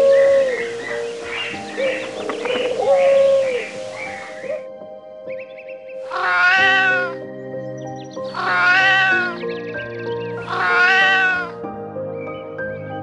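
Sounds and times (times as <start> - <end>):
background music: 0.0 - 13.0
cat meowing: 6.1 - 7.2, 8.3 - 9.4, 10.4 - 11.6.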